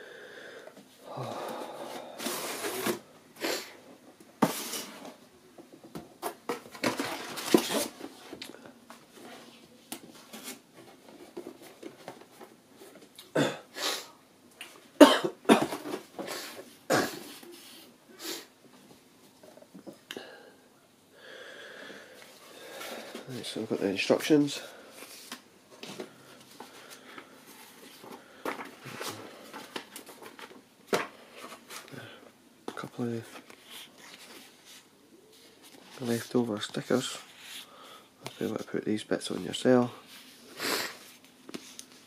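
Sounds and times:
paper and cardboard rustling: 6.2s - 8.4s
man coughing: 13.3s - 13.7s, 15.0s - 15.8s, 16.9s - 17.3s.

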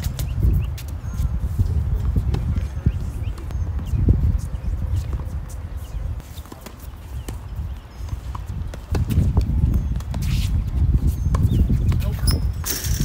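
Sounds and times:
tennis balls struck by racquets: 6.3s - 10.5s.

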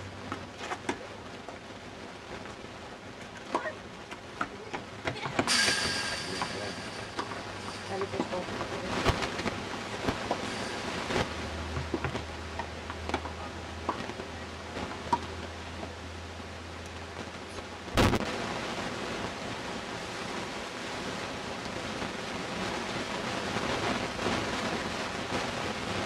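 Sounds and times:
wind noise on microphone: 5.2s - 26.0s
sharp knock: 5.5s - 8.4s
low hum: 5.5s - 20.2s.

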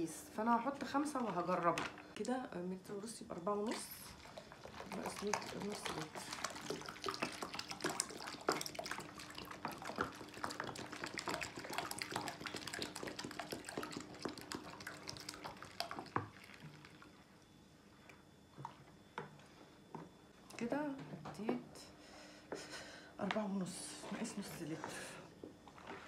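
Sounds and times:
water glugging from bottle: 3.5s - 17.6s.

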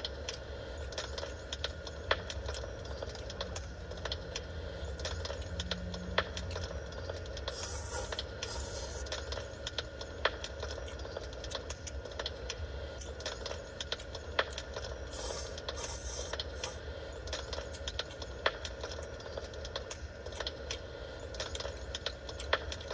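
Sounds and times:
low hum: 0.0s - 22.4s
wood fire crackling: 0.0s - 22.9s
hissy rushes: 7.5s - 9.1s, 15.1s - 16.8s.

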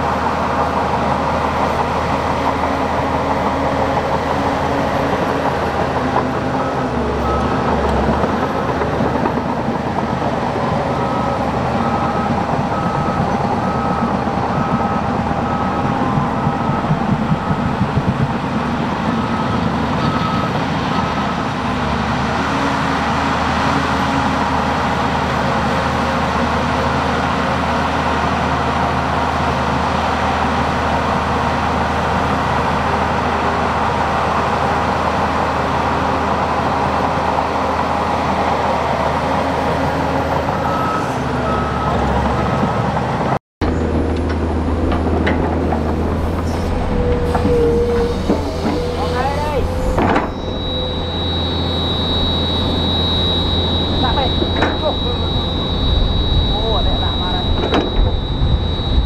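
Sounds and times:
bulldozer diesel engine running: 0.0s - 59.0s
reversing alarm beeping: 1.6s - 9.2s, 10.5s - 21.9s, 40.5s - 42.6s, 46.2s - 59.0s.

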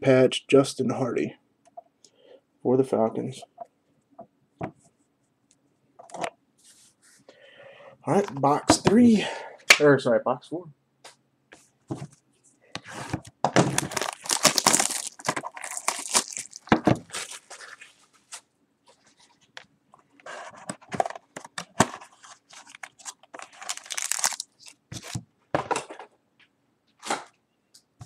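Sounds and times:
shrink-wrap tearing and crinkling: 13.6s - 18.4s, 22.0s - 25.2s.

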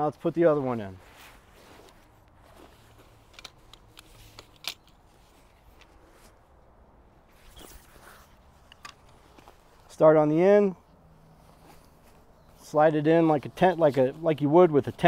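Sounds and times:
faint fabric rustling: 0.0s - 15.0s
tent pole clicks: 1.8s - 6.4s, 7.4s - 9.7s.

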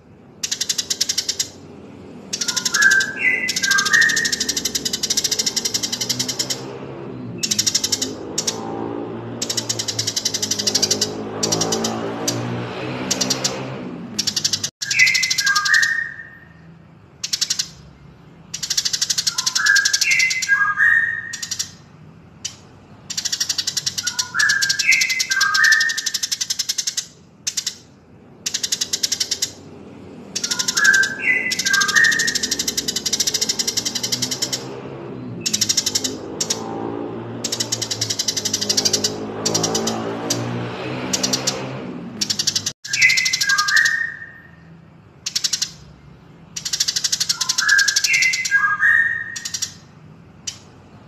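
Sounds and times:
rapid high chattering bird trills: 0.0s - 51.0s
bird whistles stepping downward: 2.4s - 6.2s, 30.4s - 34.5s, 42.3s - 44.3s.

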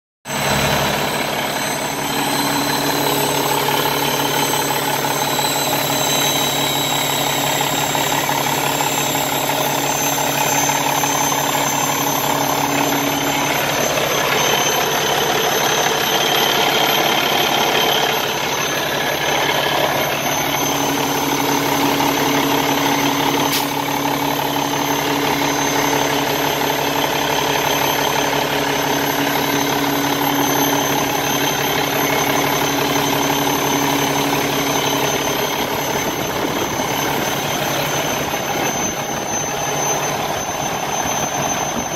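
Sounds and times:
abnormal exhaust noise: 0.3s - 41.9s
diesel engine idling: 0.3s - 41.9s.

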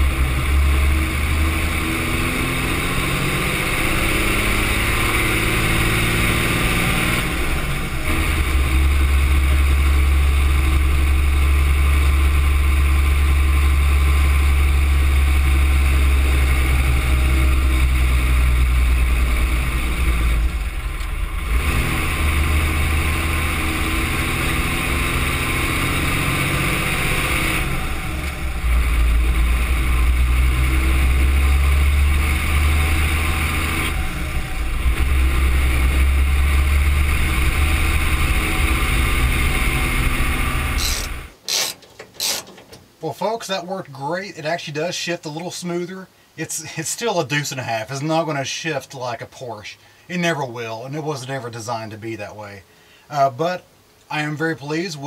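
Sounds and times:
truck engine running under load: 27.5s - 41.4s.

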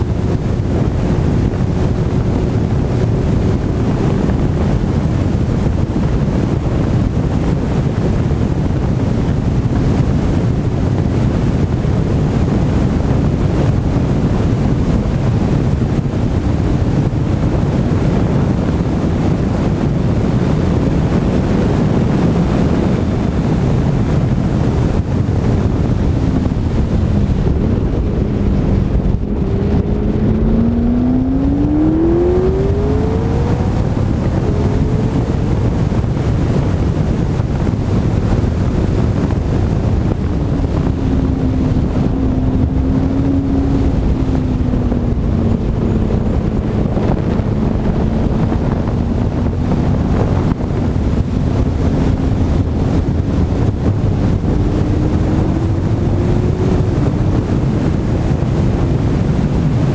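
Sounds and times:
wind rushing over microphone: 0.0s - 59.9s
car engine accelerating: 12.8s - 59.9s.

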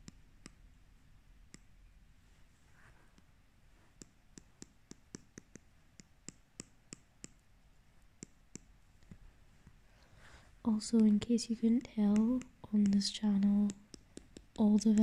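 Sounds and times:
stylus tapping on glass screen: 4.0s - 7.4s, 10.9s - 15.0s.

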